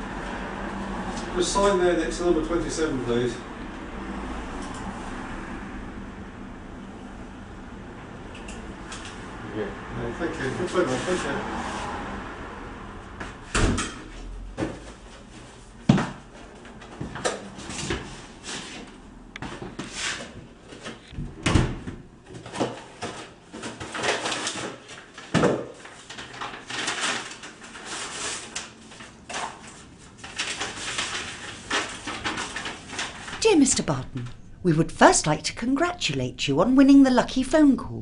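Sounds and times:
paper and packaging rustling: 22.3s - 34.2s.

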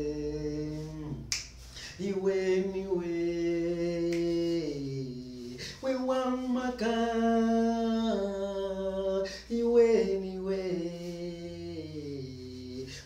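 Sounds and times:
man singing a cappella: 0.0s - 13.0s
singer breathing: 0.8s - 2.0s, 5.5s - 5.8s.

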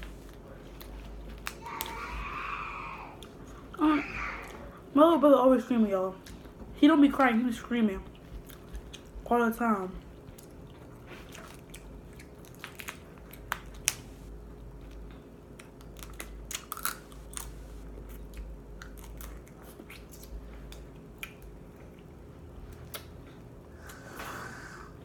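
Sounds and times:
chewing and biting: 8.0s - 9.3s, 10.0s - 24.0s
crab shells cracking: 11.6s - 14.1s, 15.5s - 17.6s.

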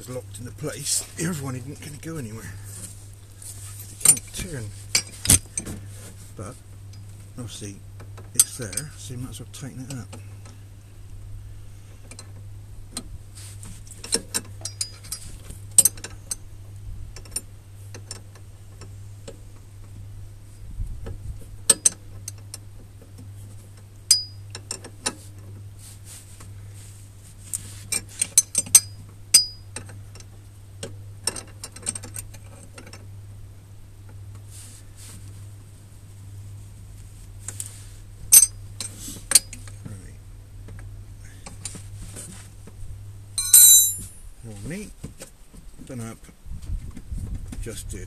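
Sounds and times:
spanner clicking on metal: 43.4s - 44.0s.

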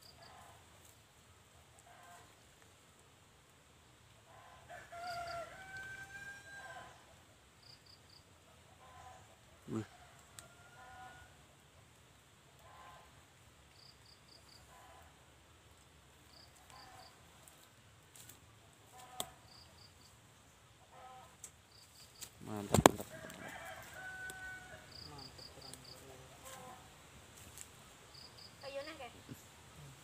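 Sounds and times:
rooster crowing: 4.6s - 7.0s, 23.0s - 25.1s.

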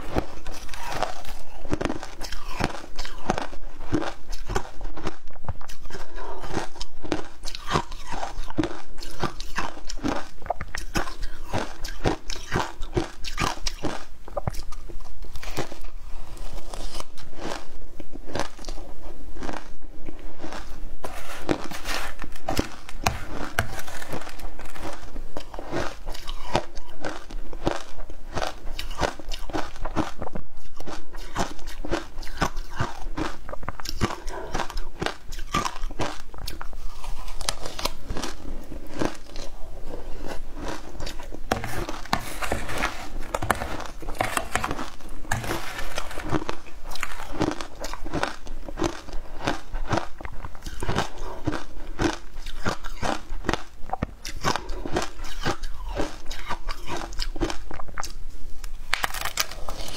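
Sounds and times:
ice crunching and chewing: 0.0s - 59.9s
metal spoon scraping ice: 21.0s - 24.9s, 41.5s - 47.4s.

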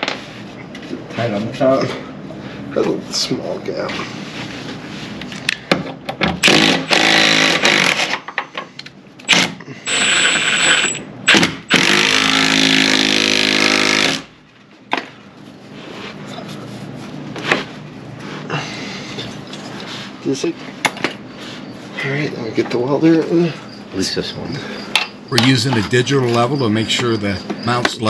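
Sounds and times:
air-powered tool running: 6.4s - 8.2s, 9.3s - 14.3s.

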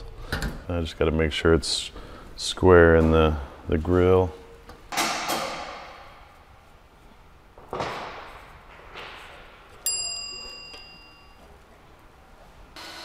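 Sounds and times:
click with metallic ring: 9.8s - 11.4s.

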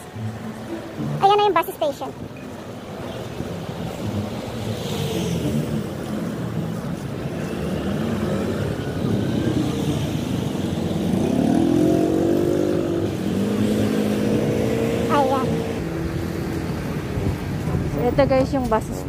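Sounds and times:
vehicle engine accelerating: 7.3s - 17.6s.

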